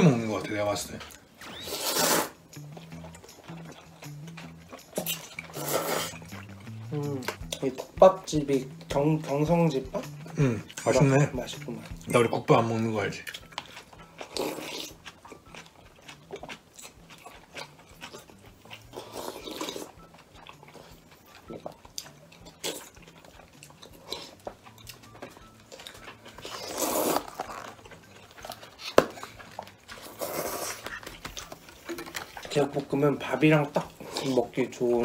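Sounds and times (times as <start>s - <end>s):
chewing: 0.0s - 35.0s
slurping soup from a spoon: 1.4s - 2.4s, 4.9s - 6.4s, 14.2s - 15.0s, 18.9s - 20.0s, 26.3s - 30.9s.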